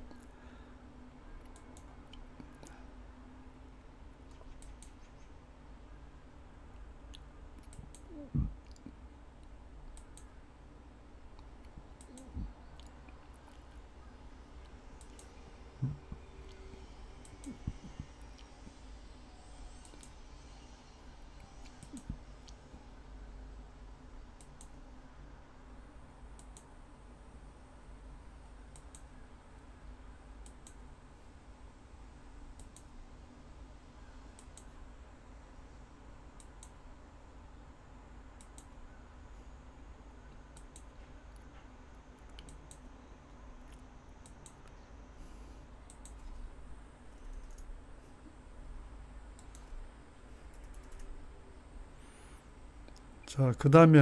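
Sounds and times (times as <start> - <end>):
low steady hum: 0.0 - 54.0
computer clicks: 4.3 - 5.1, 15.0 - 15.4, 26.4 - 26.7, 28.7 - 29.1, 32.6 - 32.9, 38.4 - 38.8, 42.2 - 42.9, 45.9 - 46.4, 47.1 - 47.7, 49.3 - 49.7, 50.4 - 51.1.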